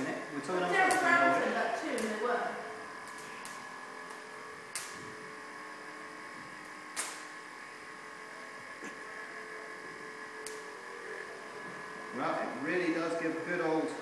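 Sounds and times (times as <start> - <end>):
generator humming: 0.0 - 14.0
sharp spark snaps: 0.7 - 2.4, 3.0 - 5.1, 6.6 - 7.4, 10.4 - 10.7.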